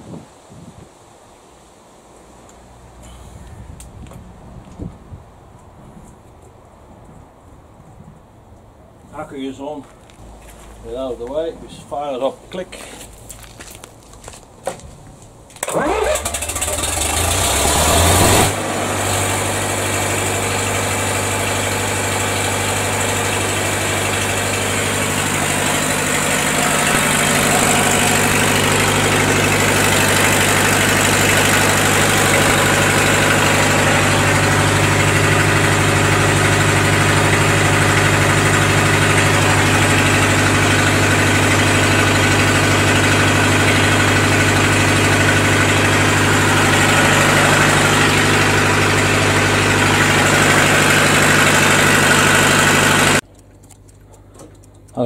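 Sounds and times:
diesel generator running: 0:15.6 - 0:53.2.

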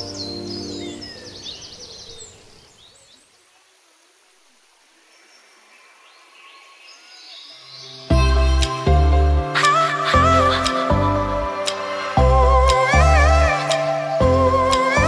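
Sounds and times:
background music: 0:00.0 - 0:01.4, 0:07.9 - 0:15.0
bird chirps: 0:00.0 - 0:03.4.

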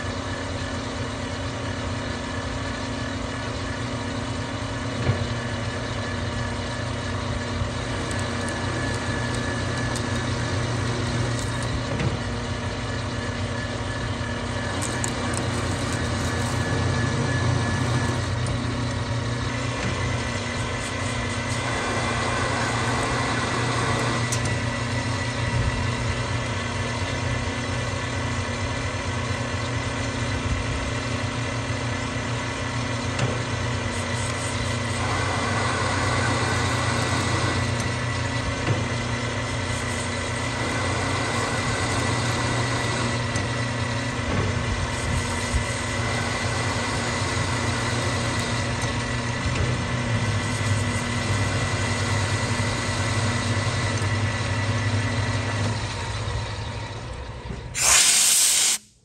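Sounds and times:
lathe motor humming: 0:00.0 - 0:57.8
lathe cutting rasp: 0:14.4 - 0:18.8, 0:20.6 - 0:24.4, 0:34.3 - 0:38.3, 0:39.6 - 0:43.9, 0:45.3 - 0:49.3.

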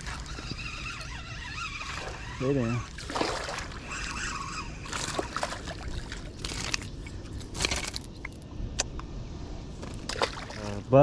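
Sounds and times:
fishing reel clicking: 0:00.0 - 0:02.8.

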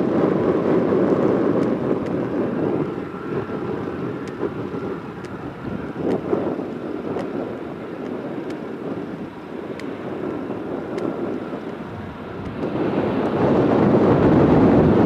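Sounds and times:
distant jet engines rumbling: 0:00.0 - 0:15.0
wind buffeting microphone: 0:00.0 - 0:15.0.

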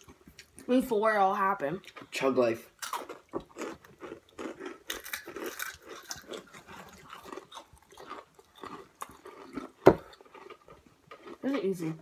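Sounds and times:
crunching of crisp snacks: 0:01.8 - 0:12.0.

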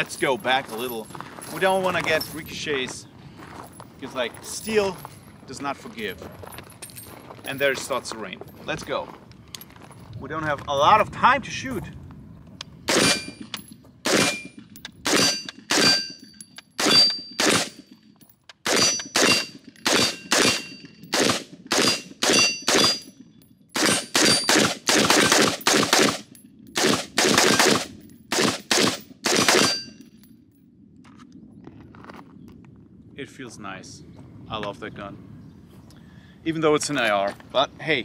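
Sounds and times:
pistol shots: 0:12.9 - 0:13.4, 0:14.0 - 0:16.2, 0:16.8 - 0:17.8, 0:18.6 - 0:23.1, 0:23.8 - 0:29.9
steel target ringing: 0:15.2 - 0:17.6, 0:21.8 - 0:23.2.

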